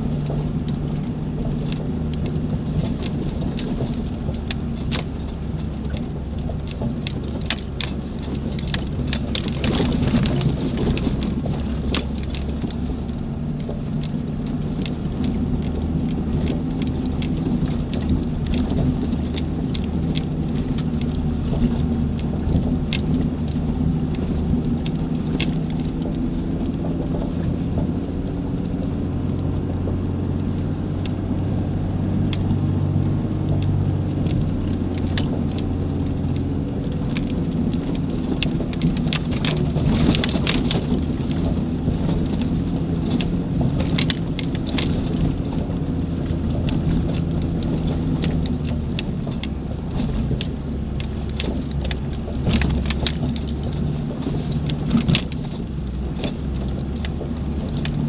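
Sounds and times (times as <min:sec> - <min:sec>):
tyres crackling over stones: 0:00.0 - 0:58.0
vehicle engine running under load: 0:00.0 - 0:58.0.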